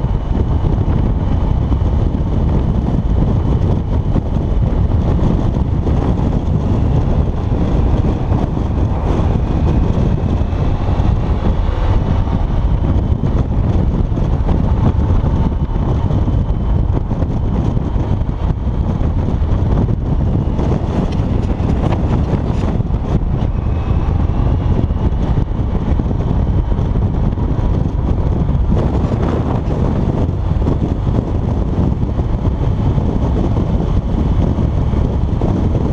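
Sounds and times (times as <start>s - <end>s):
motorcycle engine drone: 0.0s - 35.9s
wind buffeting a microphone: 0.0s - 35.9s.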